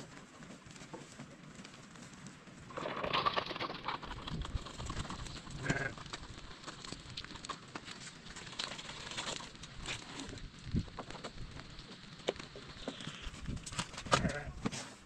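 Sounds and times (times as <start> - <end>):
toy wheelbarrow rolling on stony dirt: 0.0 - 15.0
sheep or goats bleating: 5.5 - 6.0, 14.1 - 14.6.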